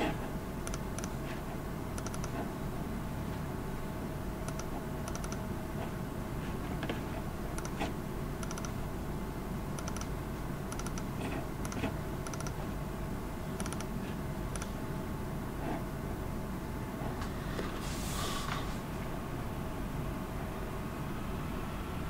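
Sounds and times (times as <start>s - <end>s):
steady background hum: 0.0s - 22.0s
mouse and keyboard clicking: 0.6s - 1.2s, 2.0s - 2.5s, 4.4s - 5.4s, 7.6s - 8.8s, 9.8s - 10.1s, 10.7s - 12.7s, 13.6s - 14.8s.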